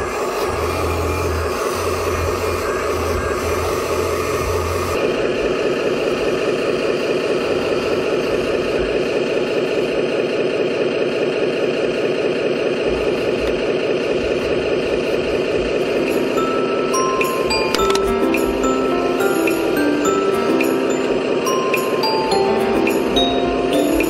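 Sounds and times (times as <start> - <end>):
toy machines mechanical hum: 0.0 - 24.0.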